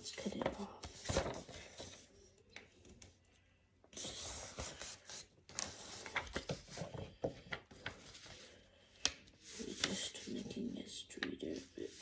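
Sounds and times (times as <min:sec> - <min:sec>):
paper rustling on a table: 0:00.3 - 0:02.1, 0:04.0 - 0:10.6.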